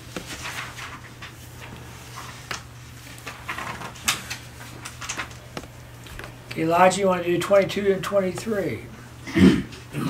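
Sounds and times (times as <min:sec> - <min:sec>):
thin pages rustling: 0:00.0 - 0:06.4.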